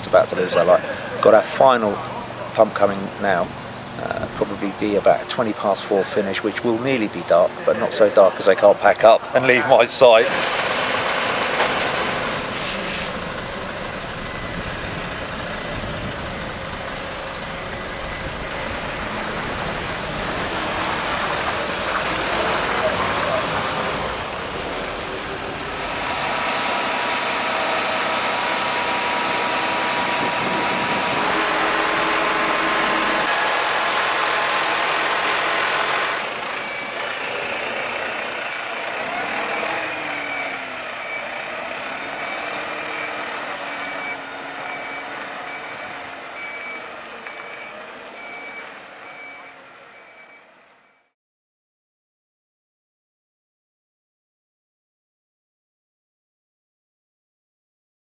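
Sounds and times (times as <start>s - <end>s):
concrete mixer truck engine: 0.0s - 5.4s, 7.0s - 50.6s
reversing alarm beeping: 35.9s - 51.2s.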